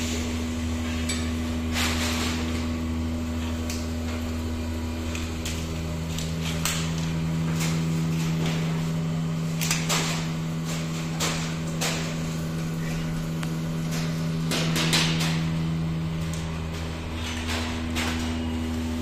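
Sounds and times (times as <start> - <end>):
lower machine tone: 0.0 - 19.0
machine mechanical hum: 0.0 - 19.0.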